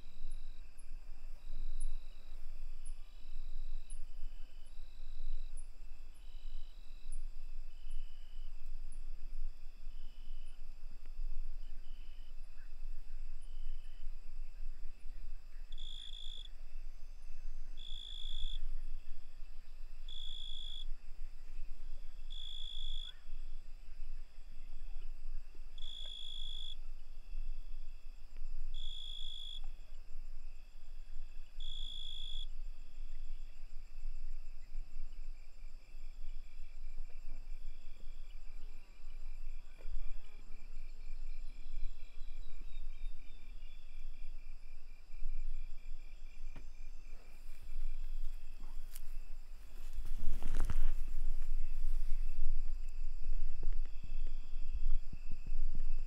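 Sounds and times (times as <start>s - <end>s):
crickets trilling: 0.0s - 56.0s.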